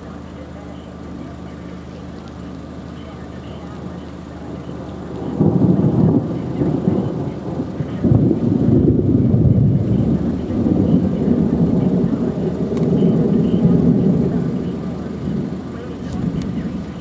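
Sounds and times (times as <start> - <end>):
thunder rolling: 4.5 - 17.0.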